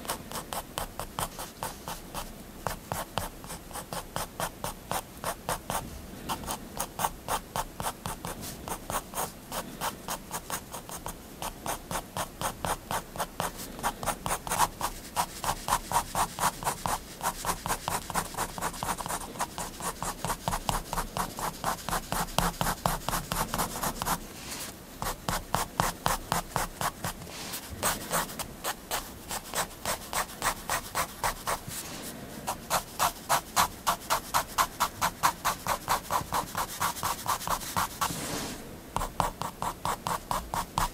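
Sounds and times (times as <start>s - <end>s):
pen scratching on paper: 0.0s - 5.8s, 6.4s - 40.9s.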